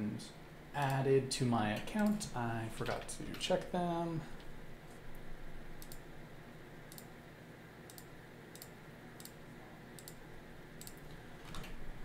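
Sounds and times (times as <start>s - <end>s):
computer mouse clicking: 5.8s - 6.1s, 6.9s - 7.1s, 7.9s - 9.4s, 10.0s - 10.2s, 10.8s - 11.8s.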